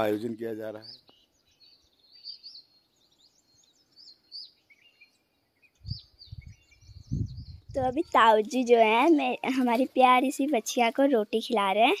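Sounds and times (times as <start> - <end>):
birds chirping and whistling: 0.0 - 9.4.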